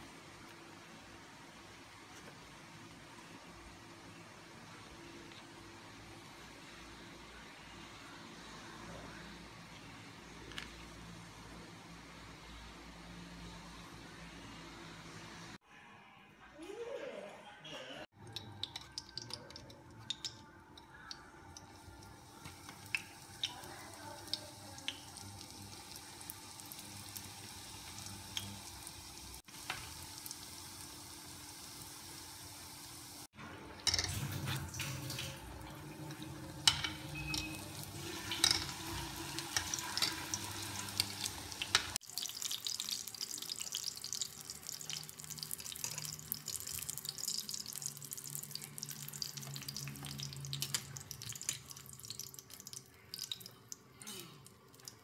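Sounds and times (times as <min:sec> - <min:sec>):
food sizzling in oil: 0:21.0 - 0:33.3, 0:34.0 - 0:53.4.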